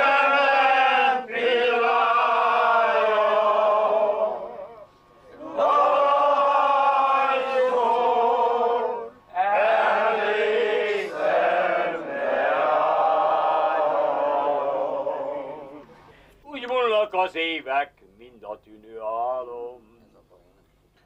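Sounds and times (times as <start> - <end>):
men singing together: 0.0 - 15.8.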